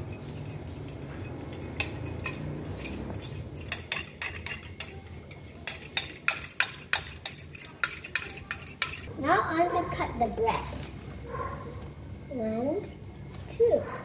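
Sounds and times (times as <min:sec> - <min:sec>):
utensil clinking against ceramic bowl: 0:00.0 - 0:09.1.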